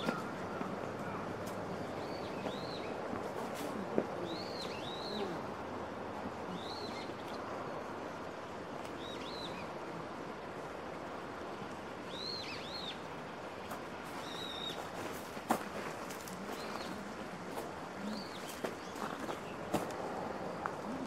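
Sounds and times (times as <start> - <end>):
bird calling: 0.0 - 5.6
background hiss: 0.0 - 21.0.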